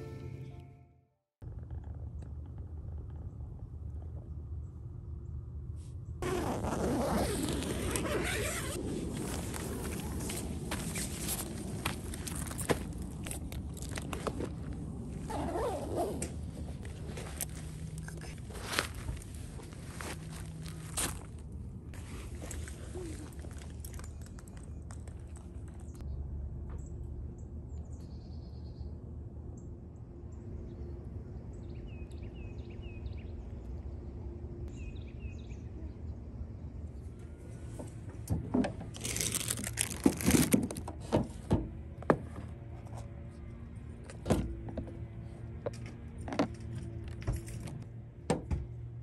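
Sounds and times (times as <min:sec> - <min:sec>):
items rustling and clattering: 0:38.4 - 0:41.4.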